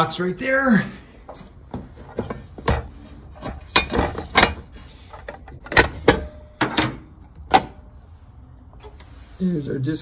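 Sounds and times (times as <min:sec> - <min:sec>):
metal cover knocks and clicks: 0:02.2 - 0:07.8.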